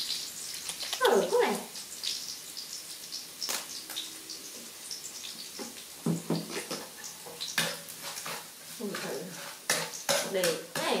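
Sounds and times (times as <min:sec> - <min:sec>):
food sizzling in a wok: 0:00.0 - 0:11.0.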